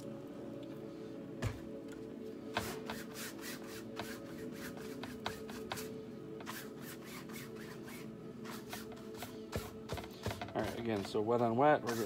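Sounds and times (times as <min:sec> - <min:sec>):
quiet background music: 0:00.0 - 0:12.0
paintbrush scraping on canvas: 0:02.5 - 0:12.0.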